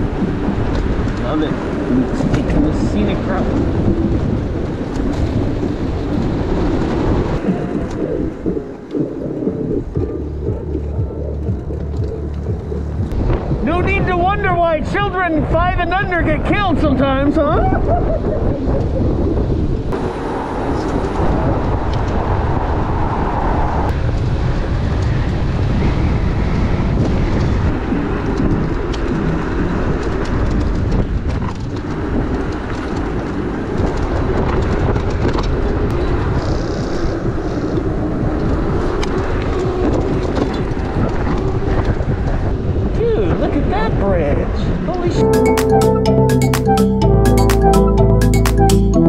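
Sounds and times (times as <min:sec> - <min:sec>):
wind rush: 0:00.0 - 0:45.2
tyre rumble on paved path: 0:03.4 - 0:14.1, 0:23.9 - 0:43.0.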